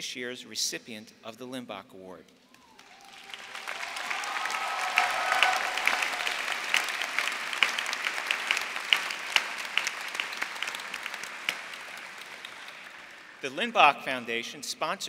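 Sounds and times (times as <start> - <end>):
audience applauding: 2.6 - 13.5.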